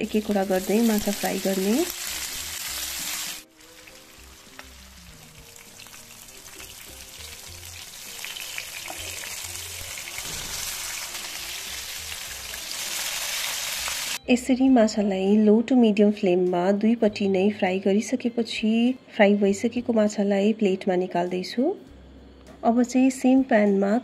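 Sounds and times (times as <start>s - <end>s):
fish sizzling in hot oil: 0.0s - 14.2s.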